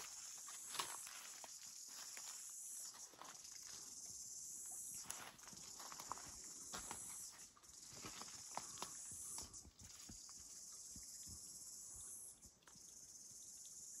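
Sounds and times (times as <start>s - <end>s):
footsteps on leaf litter: 0.0s - 3.9s, 5.0s - 9.6s.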